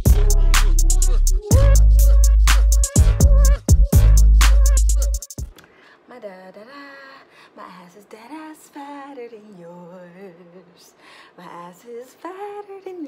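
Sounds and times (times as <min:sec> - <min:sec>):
woman singing softly: 0:06.1 - 0:13.0.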